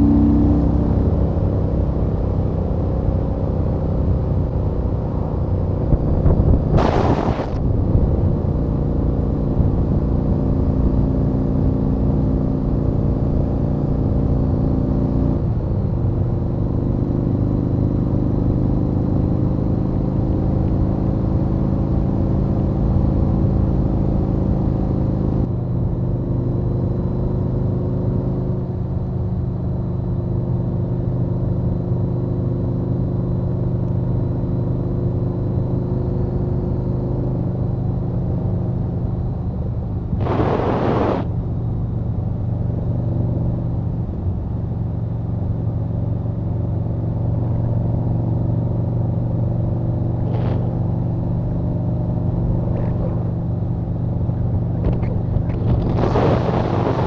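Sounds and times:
loud whoosh: 0.0s - 2.1s, 40.2s - 41.3s
motorcycle engine cruising: 0.0s - 12.3s, 48.9s - 57.0s.

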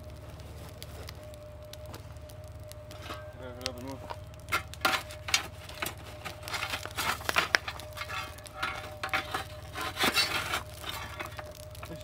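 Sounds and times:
shovel scraping coals: 0.0s - 1.2s, 2.8s - 12.0s
coals crackling: 0.0s - 12.0s
steady low hum: 0.0s - 12.0s.

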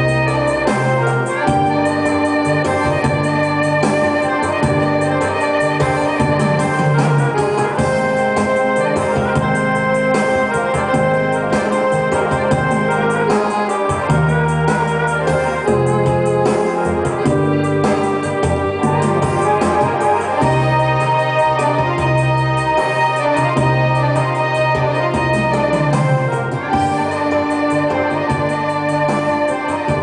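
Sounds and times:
keyboard melody with organ chords: 0.0s - 30.0s
steady beat: 0.0s - 30.0s.

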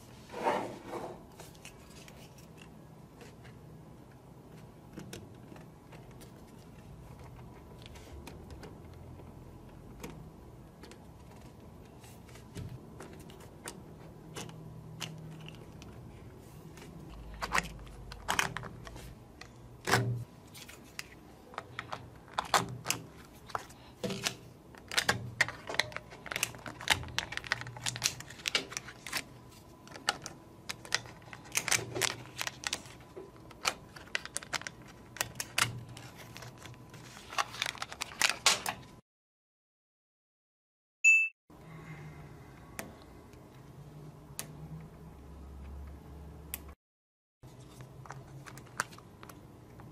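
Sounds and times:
paper card rustling: 1.4s - 3.4s, 20.4s - 38.8s.

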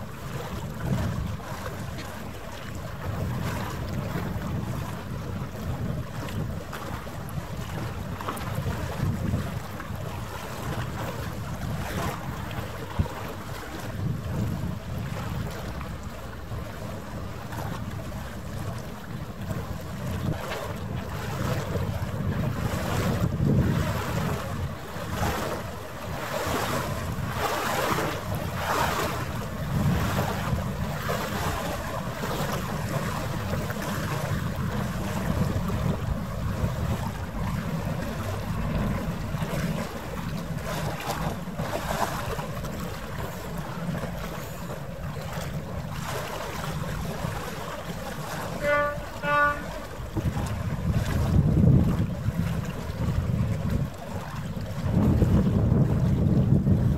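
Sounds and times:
water noise: 0.0s - 56.9s
wind buffeting microphone: 0.0s - 56.9s
short pitched toots: 48.5s - 49.9s.

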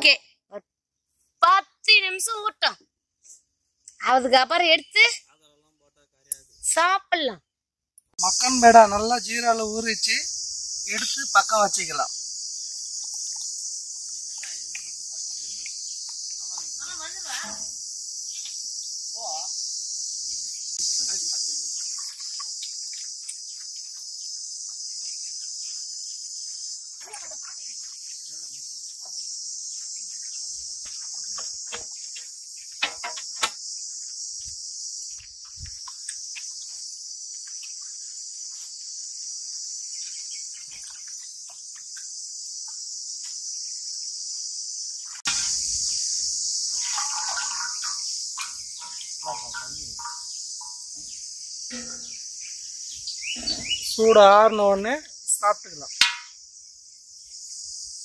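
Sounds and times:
insect chorus chirring: 0.0s - 58.0s
bird chirps: 8.2s - 36.8s, 45.0s - 58.0s
sharp knocks: 56.0s - 56.4s.

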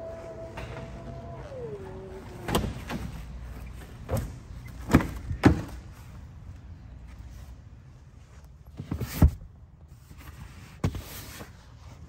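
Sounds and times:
power tailgate motor hum: 0.0s - 4.4s
latches and doors clunking: 2.2s - 3.3s.

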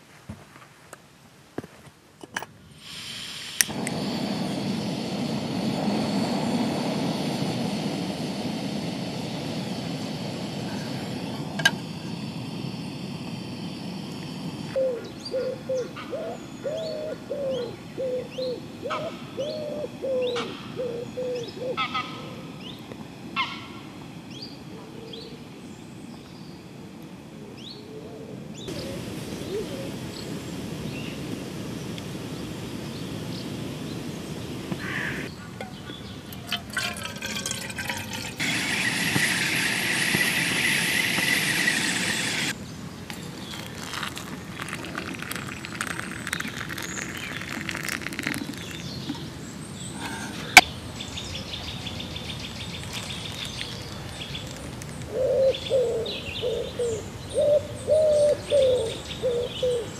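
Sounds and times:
steady hiss: 2.6s - 21.2s, 28.4s - 59.9s
birds calling: 32.8s - 59.9s
pigeon cooing: 55.1s - 59.9s.

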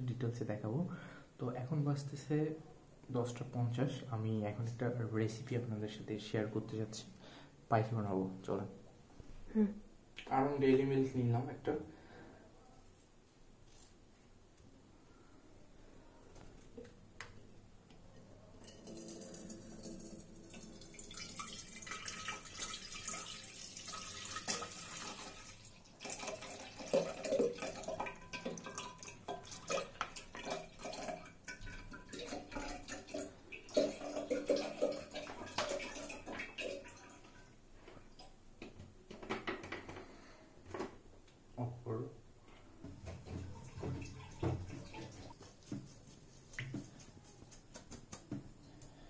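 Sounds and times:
milk pouring into metal pot: 18.5s - 37.4s.

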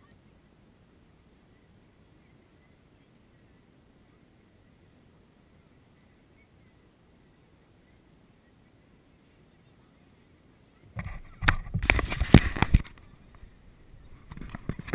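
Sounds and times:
camera housing knocking and rubbing: 11.0s - 13.0s, 14.2s - 14.9s.

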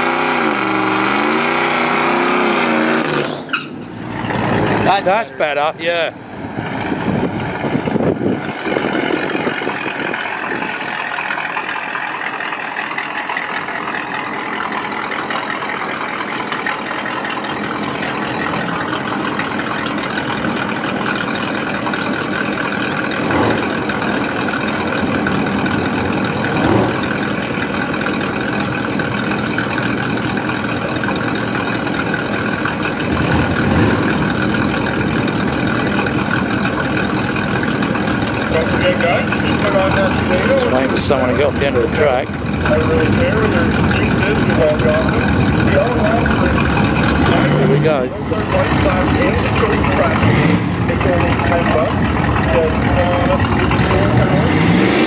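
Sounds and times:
pickup truck engine idling: 3.4s - 55.0s.

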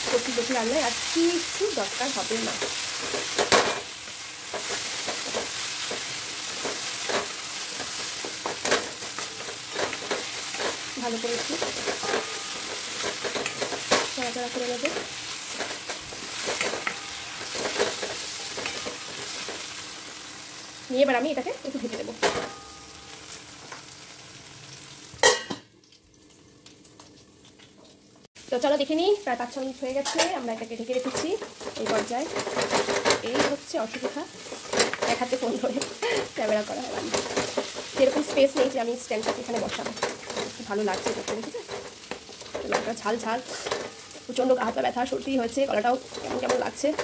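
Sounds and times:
food sizzling in hot oil: 0.0s - 47.0s
wooden spatula scraping pan: 4.5s - 19.8s, 30.9s - 44.8s
metal lid clanging on pan: 11.4s - 14.2s, 16.4s - 19.6s, 25.2s - 25.6s, 30.0s - 30.4s.

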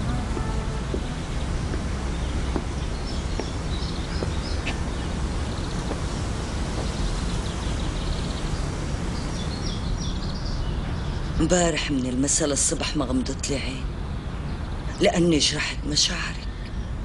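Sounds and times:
small birds chirping: 0.0s - 12.4s
low outdoor rumble: 0.0s - 17.0s.

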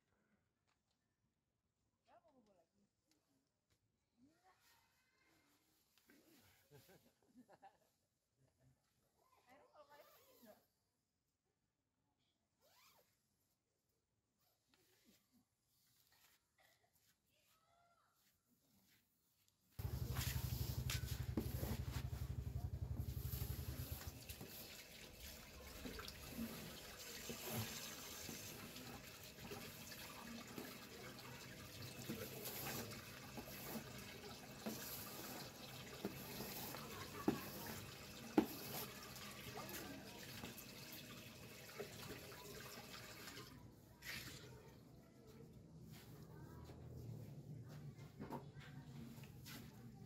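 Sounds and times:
tap water splashing into basin: 24.0s - 43.5s.

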